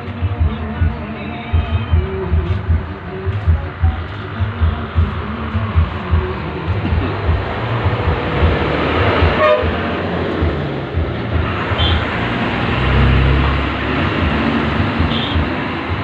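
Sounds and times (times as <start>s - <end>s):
heavy vehicle low rumble: 0.0s - 16.0s
road traffic passing: 0.0s - 16.0s
vehicle horn toot: 9.4s - 9.7s, 11.8s - 12.1s, 15.1s - 15.5s.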